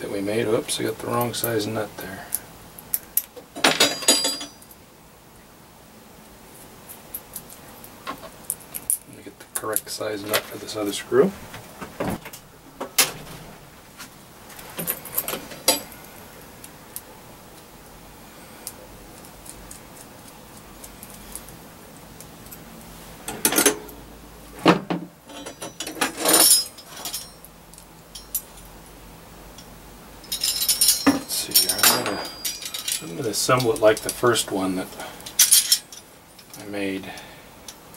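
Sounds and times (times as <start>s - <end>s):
metal hardware clinking: 2.9s - 4.8s, 14.7s - 16.0s, 23.2s - 24.0s, 25.3s - 28.7s, 29.5s - 36.7s.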